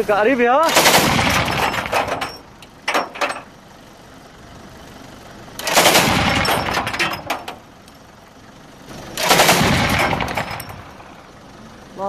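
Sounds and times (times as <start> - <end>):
anti-aircraft gun firing bursts: 0.6 - 2.2, 5.6 - 6.9, 9.2 - 10.8.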